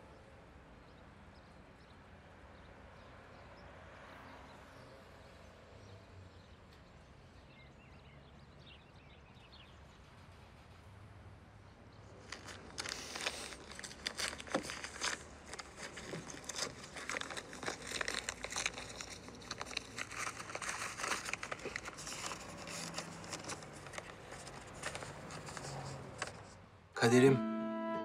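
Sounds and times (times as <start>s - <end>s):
paper rustling and crinkling: 12.2s - 26.6s.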